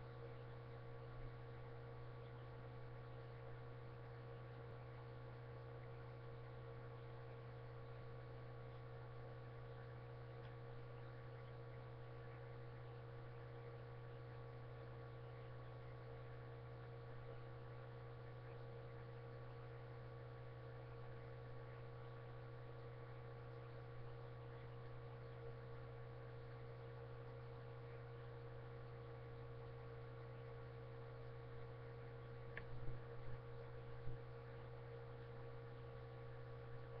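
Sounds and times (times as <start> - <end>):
faint electrical hum with hiss: 0.0 - 37.0.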